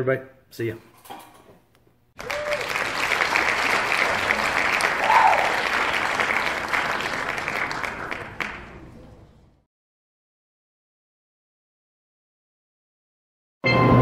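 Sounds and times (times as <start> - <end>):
crowd applause: 2.2 - 9.6.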